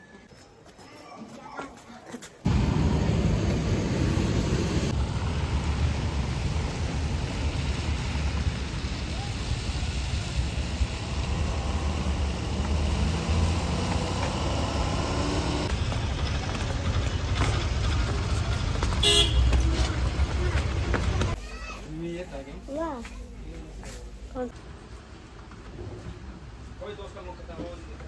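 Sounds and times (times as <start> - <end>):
car engine and road noise: 2.4 - 21.4.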